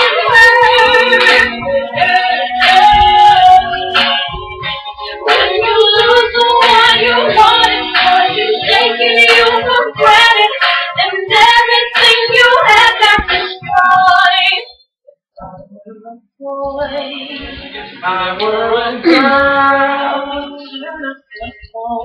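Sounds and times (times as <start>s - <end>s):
women singing loudly: 0.0s - 3.9s, 5.2s - 14.7s, 18.1s - 21.1s.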